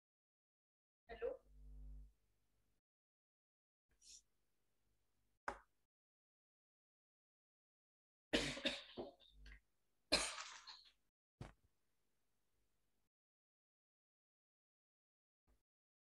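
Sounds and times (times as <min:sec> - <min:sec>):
person clearing throat: 0:08.4 - 0:09.2, 0:10.1 - 0:10.8
person coughing: 0:08.4 - 0:09.2, 0:10.1 - 0:10.8.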